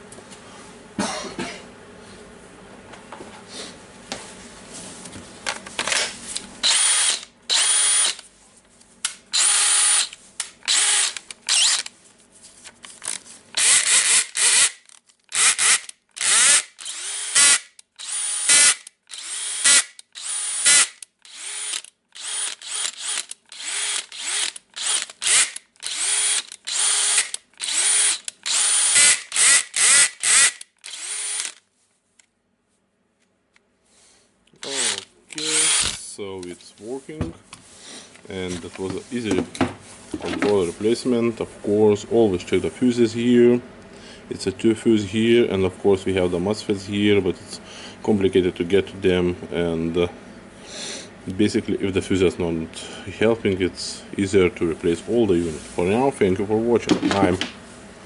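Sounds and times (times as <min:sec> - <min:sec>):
drill motor spinning up: 0:06.6 - 0:08.2, 0:09.3 - 0:11.9, 0:13.6 - 0:31.6, 0:34.6 - 0:36.0.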